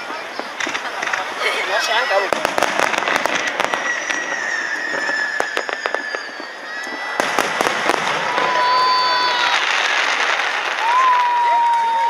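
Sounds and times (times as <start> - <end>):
fireworks bangs and crackles: 0.0 - 12.0
firework whistle falling in pitch: 3.3 - 9.9.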